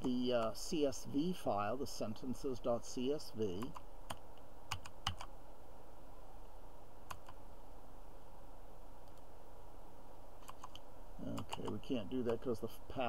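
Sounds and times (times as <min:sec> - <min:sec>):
low room hum: 0:00.0 - 0:13.0
computer mouse clicks: 0:07.1 - 0:07.4, 0:09.0 - 0:09.3, 0:10.4 - 0:10.8.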